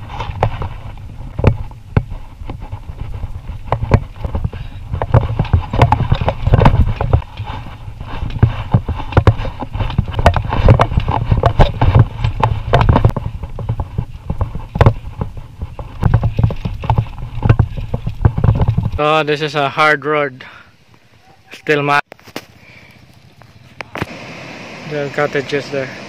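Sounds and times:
bicycle rattling on stony road: 0.0s - 19.8s.

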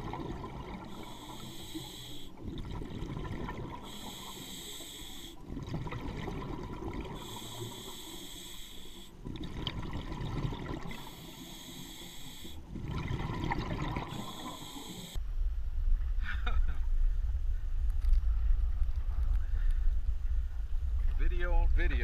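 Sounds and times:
exhaled bubbles rumbling: 0.0s - 1.4s, 2.4s - 4.2s, 5.4s - 7.9s, 9.2s - 11.1s, 12.7s - 14.5s
regulator inhalation hiss: 0.9s - 2.4s, 3.8s - 5.4s, 7.2s - 9.2s, 10.9s - 12.7s, 14.0s - 15.2s.

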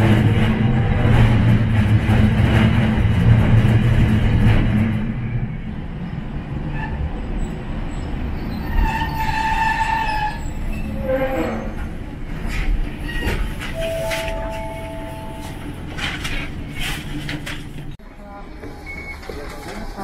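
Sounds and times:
tram motors and wheels rumbling: 0.0s - 20.0s
high brake squeal: 8.0s - 11.9s.

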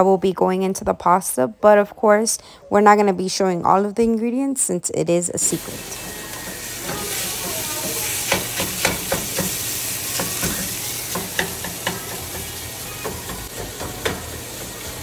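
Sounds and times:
sausage meat sizzling in pan: 5.4s - 15.0s
wooden spatula knocking pan: 6.5s - 14.3s.

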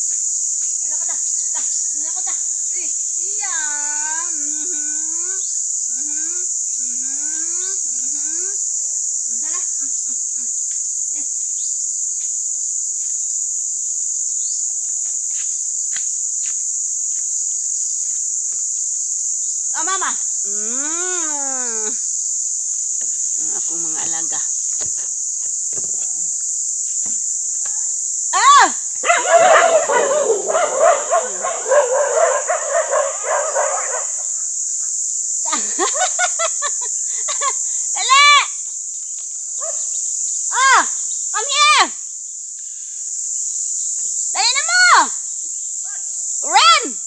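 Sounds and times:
cricket chirring: 0.0s - 47.0s
high-pitched insect chorus: 0.0s - 47.0s
dogs whining and yipping: 29.0s - 34.4s.

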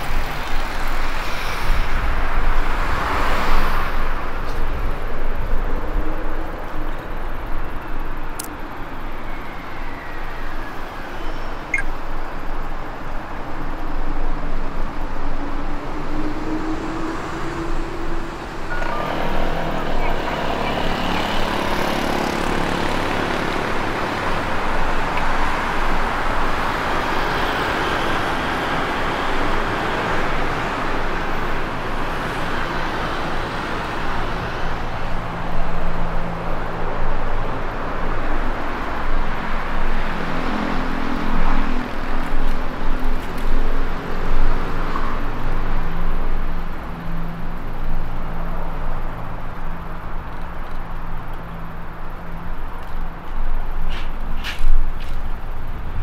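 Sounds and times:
passing cars and tyre noise: 0.0s - 56.0s
low engine hum: 14.3s - 56.0s.

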